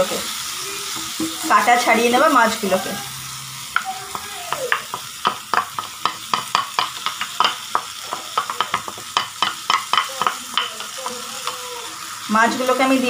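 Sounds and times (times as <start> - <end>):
masala sizzling in a pan: 0.0 - 13.0
wooden spatula knocking and scraping: 3.8 - 11.6.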